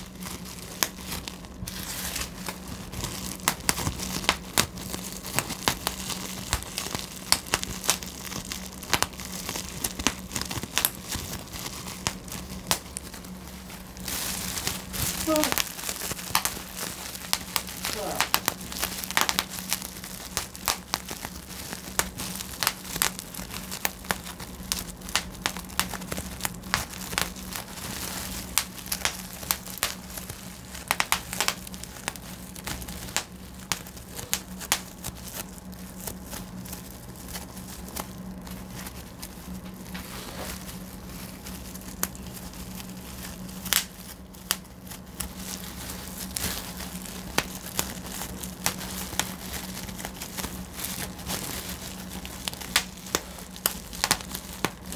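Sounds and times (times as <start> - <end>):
bubble wrap popping: 0.0 - 54.9
plastic sheet crinkling: 0.0 - 54.9
steady low hum: 0.0 - 54.9.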